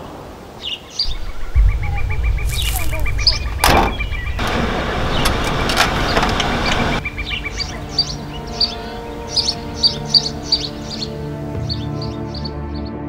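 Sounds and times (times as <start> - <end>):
birds chirping: 0.0 - 13.0
steady tones: 1.0 - 11.6
short whoosh: 1.1 - 6.2
van engine starting and running: 3.6 - 8.7.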